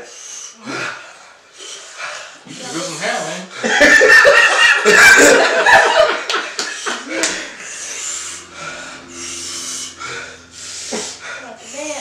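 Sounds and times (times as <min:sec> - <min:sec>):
rasping hissing breaths: 0:00.0 - 0:03.8, 0:06.4 - 0:12.0
person laughing: 0:03.7 - 0:07.6.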